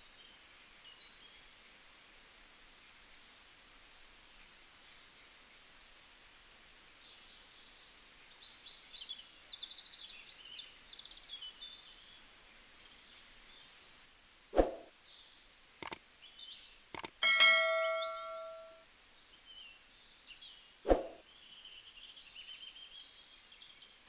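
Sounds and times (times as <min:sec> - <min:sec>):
faint outdoor hiss: 0:00.0 - 0:24.0
bird trills: 0:17.0 - 0:18.8
birds chirping: 0:17.0 - 0:18.8.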